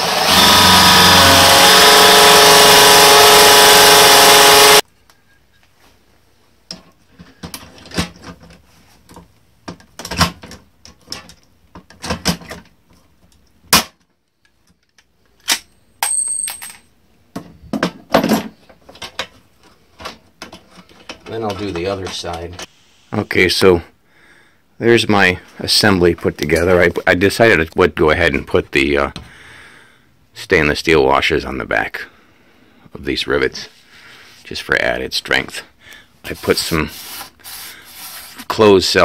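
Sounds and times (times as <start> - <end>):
cordless drill boring metal: 0.0 - 4.8.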